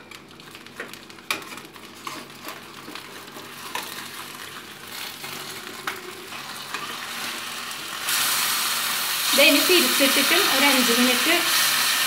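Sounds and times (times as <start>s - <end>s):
aluminium foil crinkling: 0.0s - 6.9s
oil sizzling in a frying pan: 2.5s - 12.0s.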